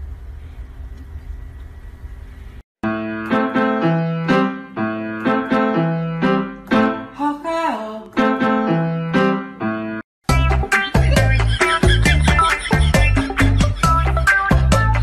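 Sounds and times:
bouncy keyboard tune: 2.8 - 15.0
busier music track: 8.0 - 15.0.

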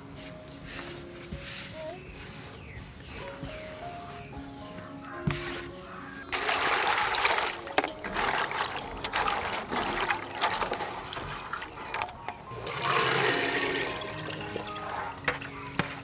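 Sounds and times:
hands swishing berries in water: 0.1 - 16.0
water pouring into metal basin: 6.3 - 16.0.

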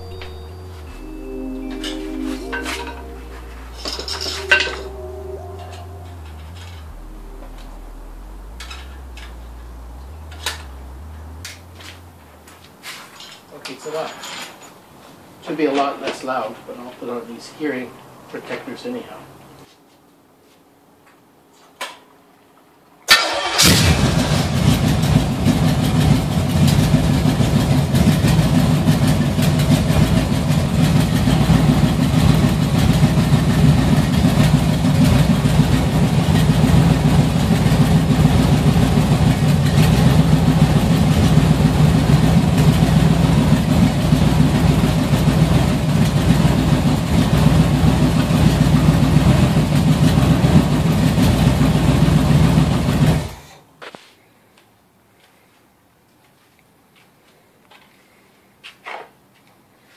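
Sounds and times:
engine starting and running: 0.0 - 13.4, 23.1 - 53.6
short noise: 0.0 - 13.4.

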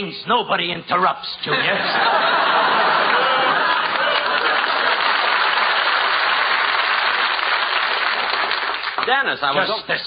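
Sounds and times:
audience laughing: 1.5 - 6.3
audience applauding: 2.1 - 9.2.

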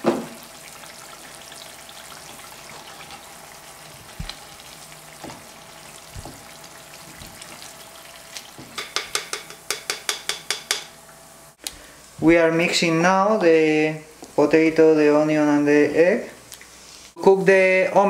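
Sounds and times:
oil sizzling in a frying pan: 0.0 - 11.6
spatula knocking: 6.1 - 6.5, 8.6 - 11.0.

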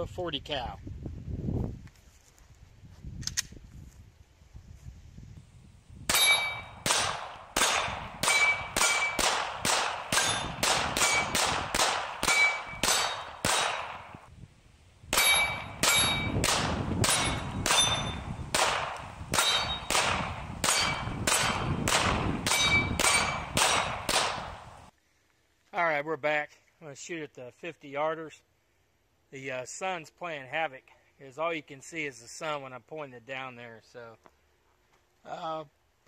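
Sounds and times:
metallic ring of steel targets: 6.1 - 14.2, 15.1 - 24.5
pistol shots: 6.1 - 14.3, 15.1 - 24.7.

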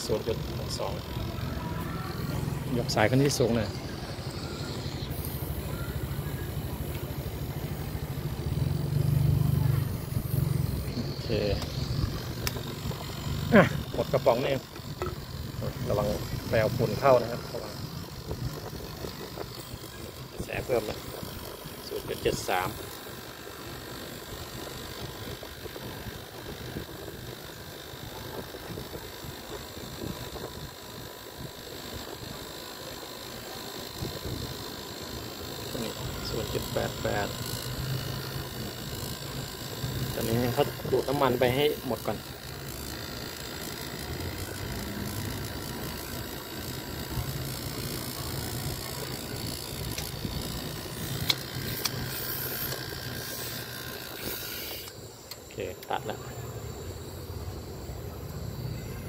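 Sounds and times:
air conditioner unit humming: 0.0 - 59.0
sharp clicks: 51.0 - 52.8.

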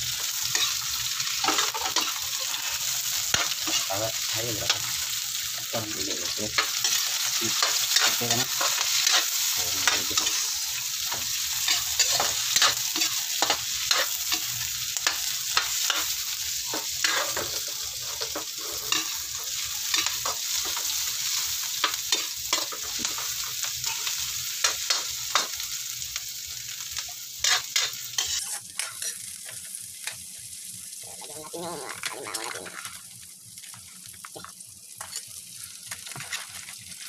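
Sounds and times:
vegetables sizzling in hot oil: 0.0 - 37.0
metal spatula scraping pan: 17.0 - 20.8, 23.8 - 24.2, 27.4 - 29.2.

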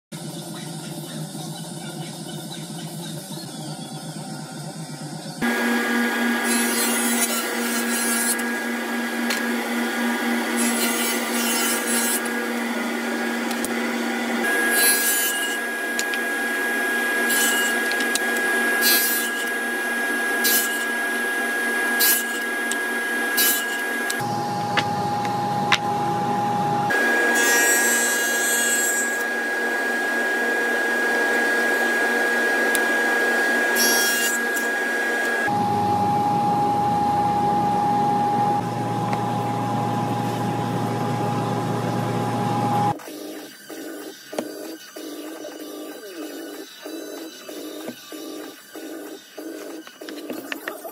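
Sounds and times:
table saw whining: 3.3 - 43.6
saw blade cutting wood: 5.4 - 25.9, 26.8 - 30.4, 31.0 - 35.5, 42.9 - 50.7.

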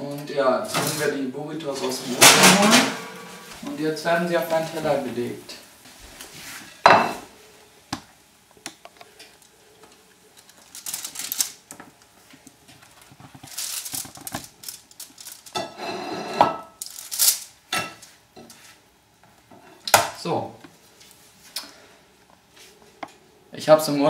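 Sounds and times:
aluminium foil crinkling: 8.9 - 15.8, 16.8 - 18.1.

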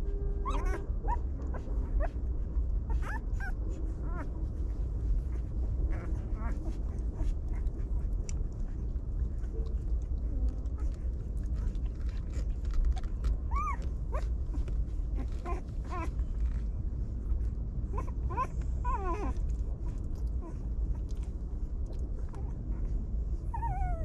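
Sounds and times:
steady low rumble: 0.0 - 24.0
puppies whimpering: 2.9 - 4.3, 5.3 - 16.5, 17.9 - 21.2, 22.2 - 24.0.

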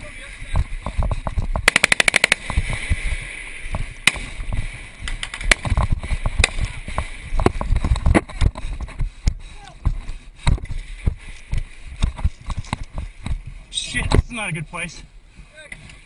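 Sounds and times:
automatic gunfire: 1.6 - 2.4.

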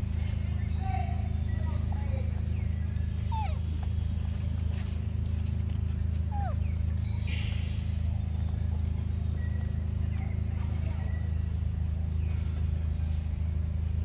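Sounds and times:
steady low hum: 0.0 - 14.0
monkey squeak: 3.3 - 3.6, 6.3 - 6.6.

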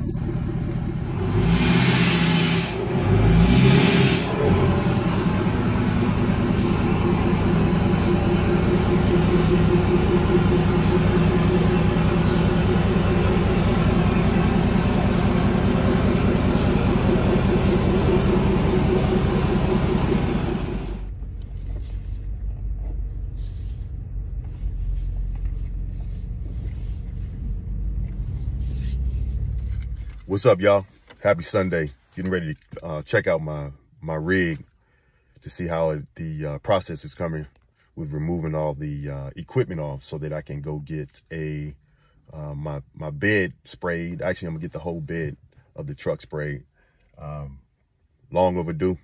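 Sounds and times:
low rumble inside moving car: 0.0 - 2.0, 2.7 - 30.4
engine rumbling: 0.0 - 49.0.

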